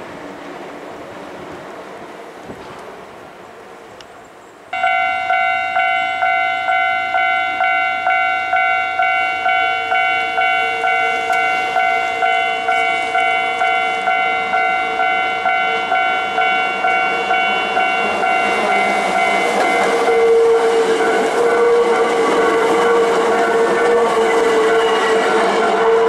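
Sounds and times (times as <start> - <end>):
level crossing bell ringing: 4.8 - 20.4
faint electric train running: 4.8 - 26.0.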